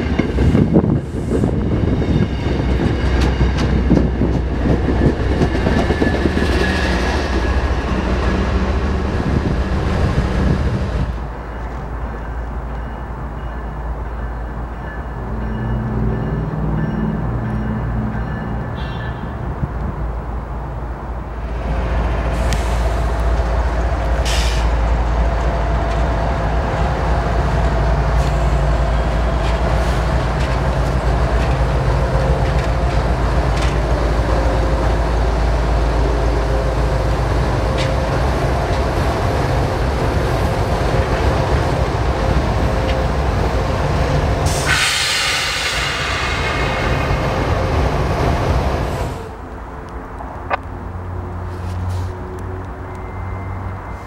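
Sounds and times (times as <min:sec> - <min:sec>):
steel wheels screeching on rails: 0:00.0 - 0:11.0, 0:36.6 - 0:49.3
diesel locomotive drone: 0:00.0 - 0:54.0.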